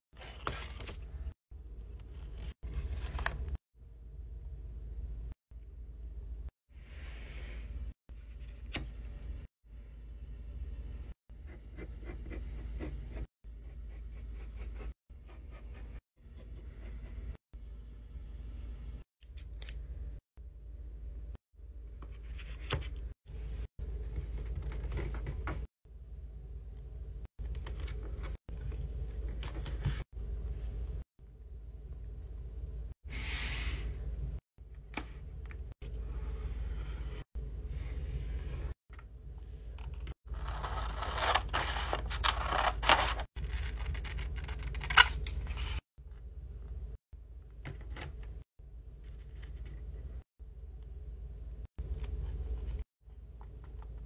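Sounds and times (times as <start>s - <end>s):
paper rustling and crinkling: 0.1s - 1.4s, 2.0s - 3.6s, 40.3s - 45.8s.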